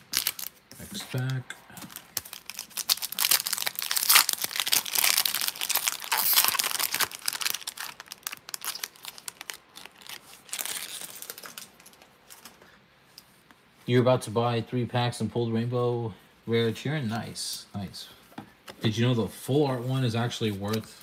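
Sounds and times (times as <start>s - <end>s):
foil wrapper tearing and crinkling: 0.0s - 0.5s, 1.9s - 12.5s
cards being handled: 19.9s - 21.0s.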